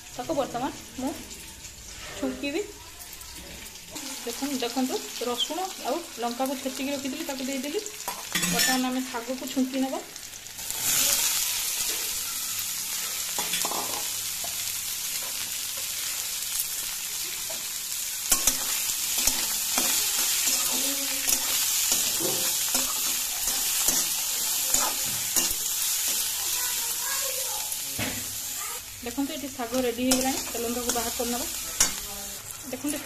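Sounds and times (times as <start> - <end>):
greens sizzling in hot oil: 0.0 - 33.0
metal spatula scraping a pan: 18.3 - 26.4.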